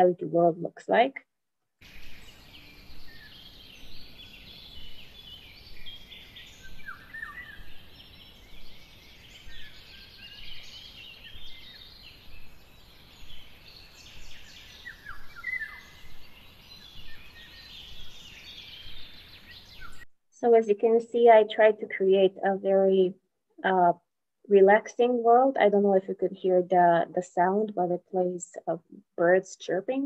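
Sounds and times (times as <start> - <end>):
small birds twittering: 1.8 - 20.1
faint steady hiss: 1.8 - 20.7.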